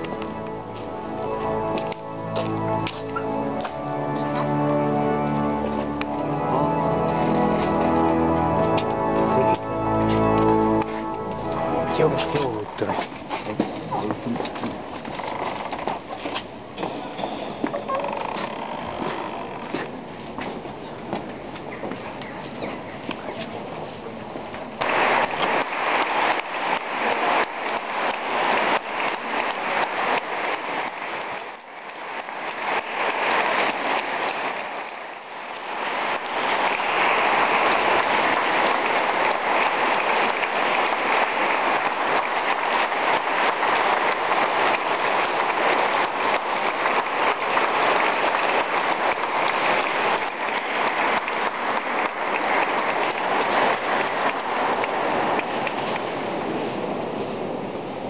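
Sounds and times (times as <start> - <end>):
crowd applauding: 0.0 - 14.4, 24.8 - 56.5.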